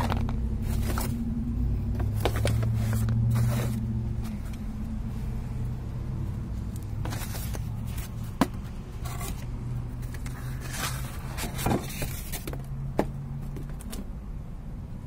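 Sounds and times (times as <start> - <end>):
steady low hum: 0.0 - 15.0
cardboard scraping on paving tiles: 2.1 - 4.5, 7.0 - 13.1.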